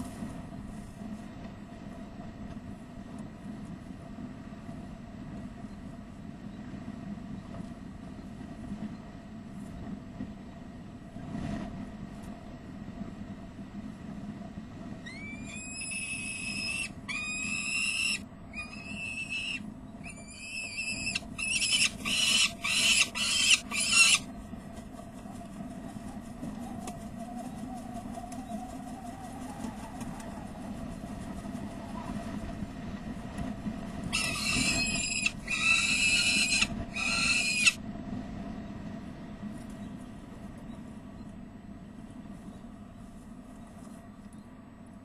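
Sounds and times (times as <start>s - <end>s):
falcon harsh alarm calls: 15.1s - 24.2s, 34.1s - 37.8s.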